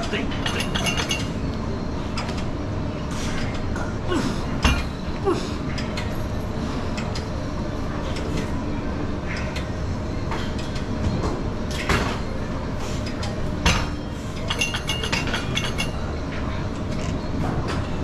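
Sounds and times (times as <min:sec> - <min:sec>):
weights clinking and clanking: 0:13.7 - 0:16.0.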